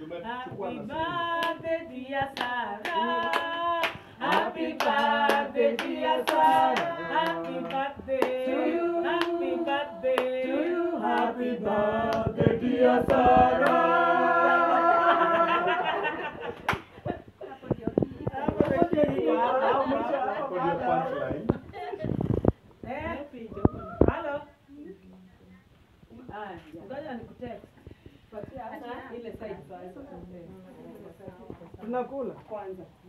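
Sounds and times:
group singing: 0:00.1 - 0:16.6
hands clapping in rhythm: 0:01.3 - 0:01.7, 0:02.3 - 0:08.5, 0:09.1 - 0:11.4, 0:12.0 - 0:14.1, 0:16.6 - 0:16.9.

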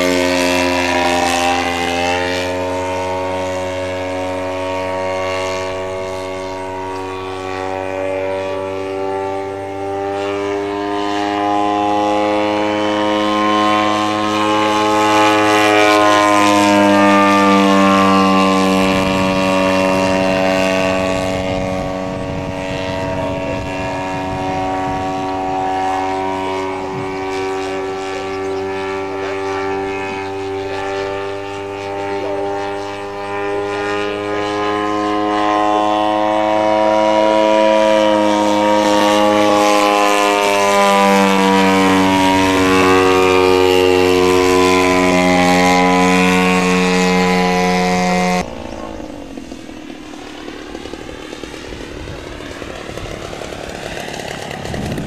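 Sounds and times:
model plane engine drone: 0:00.0 - 0:55.0.

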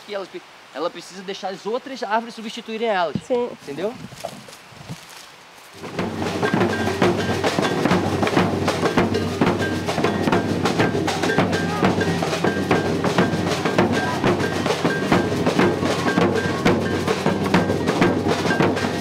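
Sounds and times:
drum and wood-block strikes: 0:05.8 - 0:19.0.

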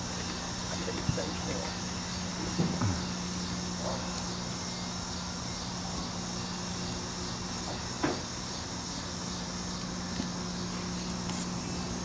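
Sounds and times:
constant low hum: 0:00.0 - 0:12.0
high chorus of insects: 0:00.0 - 0:12.0.

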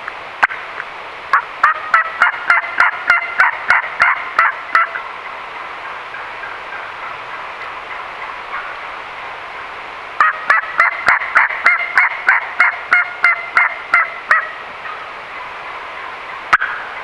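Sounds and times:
turkey call hen yelps: 0:01.3 - 0:05.1, 0:10.2 - 0:15.0.

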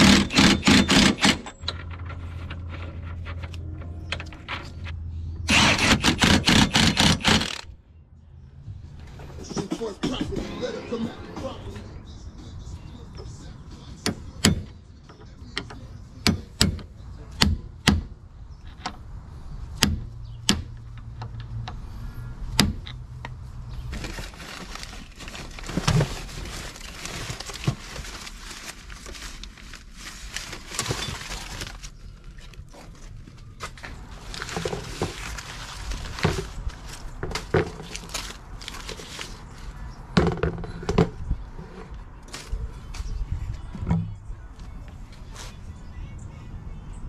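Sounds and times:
rustling and scraping: 0:01.2 - 0:05.2, 0:23.1 - 0:45.8.

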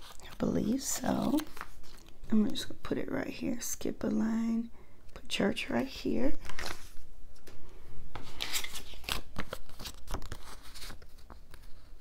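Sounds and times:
paper sticker sheets rustling: 0:00.0 - 0:02.7, 0:06.4 - 0:07.5, 0:08.1 - 0:12.0.

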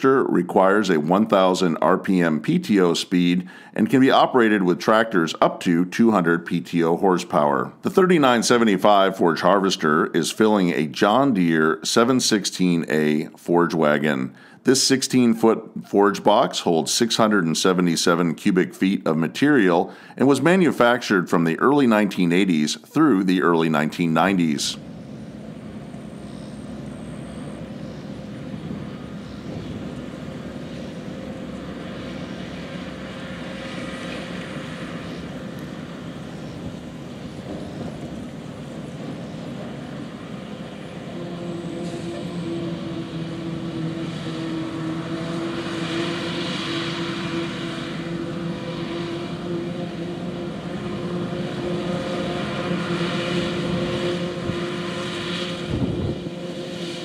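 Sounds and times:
tractor engine under load: 0:23.5 - 0:53.0.

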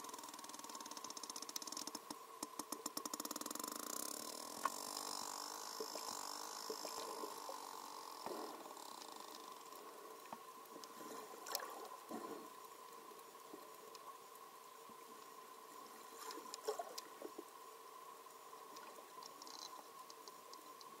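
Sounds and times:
whale echolocation clicks: 0:00.0 - 0:12.0, 0:16.2 - 0:17.4, 0:18.7 - 0:21.0.

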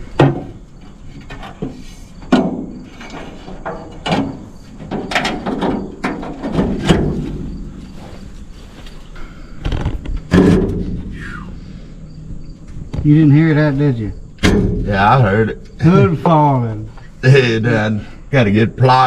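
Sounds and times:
car hood hinges creaking: 0:09.6 - 0:11.0.

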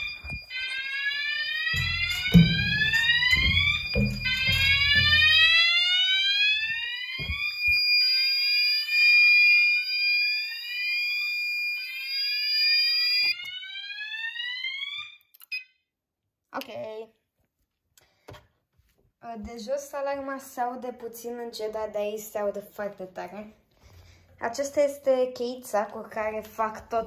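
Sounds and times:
fire alarm siren wailing: 0:00.0 - 0:15.8
steady high-pitched tone: 0:01.7 - 0:05.6
handling thumps and steps: 0:01.7 - 0:05.7, 0:06.6 - 0:07.8.

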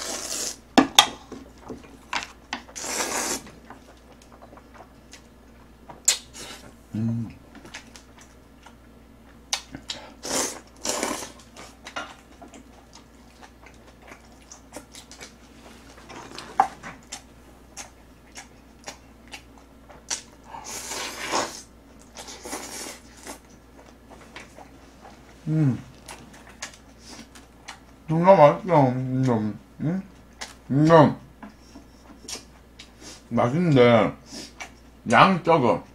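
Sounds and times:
slurping noodles: 0:00.0 - 0:00.6, 0:02.8 - 0:03.5, 0:10.2 - 0:11.4, 0:20.6 - 0:23.4
chewing: 0:01.4 - 0:06.6, 0:07.5 - 0:21.2, 0:21.9 - 0:28.1, 0:30.1 - 0:30.7, 0:31.4 - 0:33.2, 0:34.4 - 0:34.9
person humming: 0:06.9 - 0:07.4, 0:25.4 - 0:25.9.

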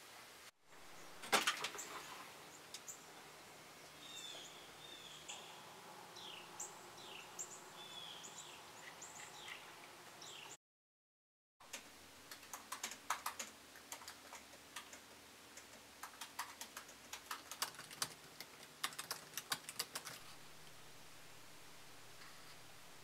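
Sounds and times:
faint room hum: 0:00.0 - 0:10.6, 0:11.6 - 0:23.0
computer keyboard typing: 0:11.7 - 0:20.3.

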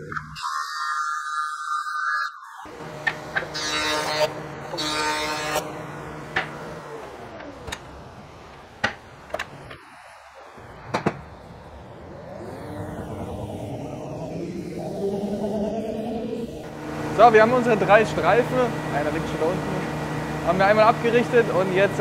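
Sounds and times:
planer cutting wood: 0:02.6 - 0:10.0, 0:12.1 - 0:22.0
boards knocking: 0:08.8 - 0:09.5.

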